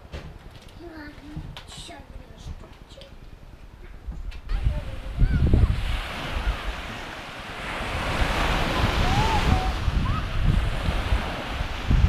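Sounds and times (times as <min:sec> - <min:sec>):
wind rumbling on microphone: 0:00.0 - 0:12.0
sea waves washing ashore: 0:04.4 - 0:12.0.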